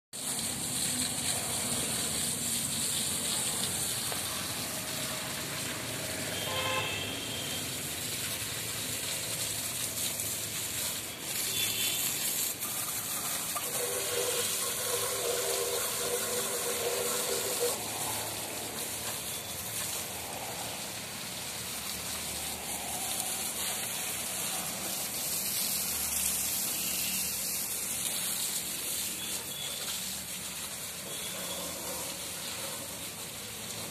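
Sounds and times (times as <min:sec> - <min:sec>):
hose water spraying and splashing: 0:00.1 - 0:33.9.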